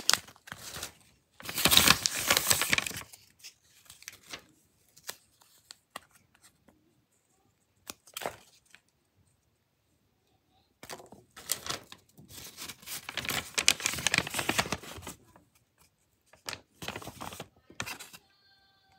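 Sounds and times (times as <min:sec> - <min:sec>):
packaging tearing and crinkling: 0:00.0 - 0:04.4, 0:11.4 - 0:15.2.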